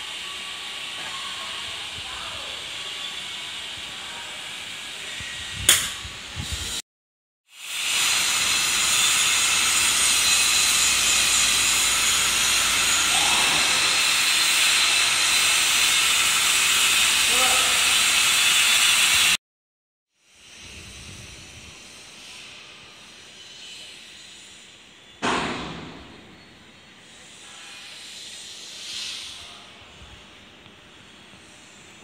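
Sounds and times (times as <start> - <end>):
sharp knock: 5.7 - 6.0, 25.2 - 26.1.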